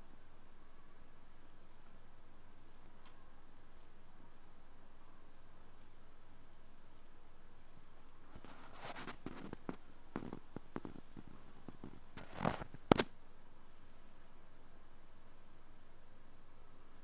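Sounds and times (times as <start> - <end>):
ear pick scraping in ear: 8.3 - 13.1.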